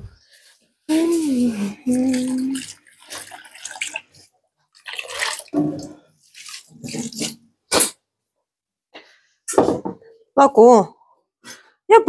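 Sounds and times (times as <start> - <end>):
water splashing in a sink: 0.9 - 7.9.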